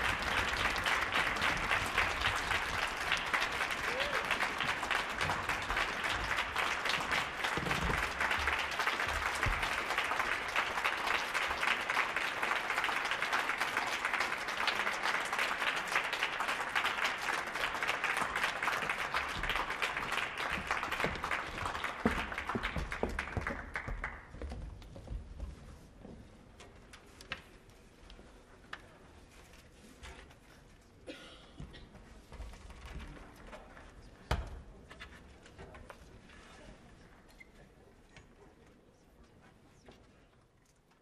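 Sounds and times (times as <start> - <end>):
audience applause: 0.0 - 24.3.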